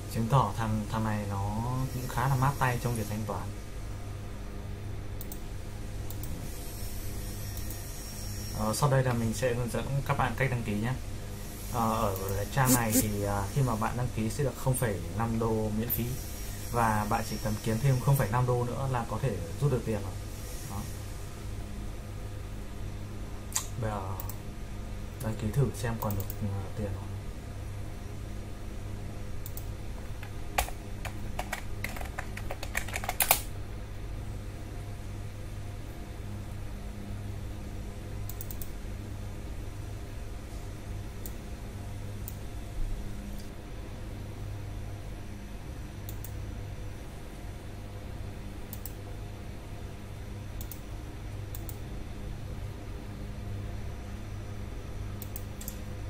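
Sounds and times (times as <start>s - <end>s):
steady low hum: 0.0s - 56.0s
computer mouse clicking: 5.2s - 5.4s, 23.6s - 24.4s, 26.0s - 26.4s, 29.4s - 33.5s, 38.3s - 38.7s, 46.1s - 46.4s, 48.7s - 49.0s, 50.6s - 50.8s, 51.5s - 51.8s, 55.2s - 55.8s
typing on computer keyboard: 30.6s - 33.5s.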